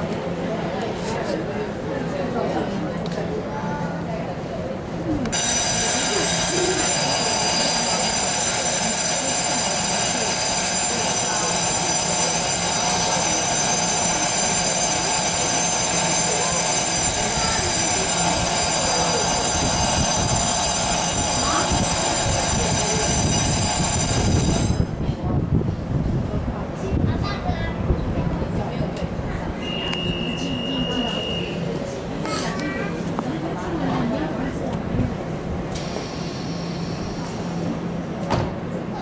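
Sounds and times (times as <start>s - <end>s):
electric bell ringing: 5.4s - 24.8s.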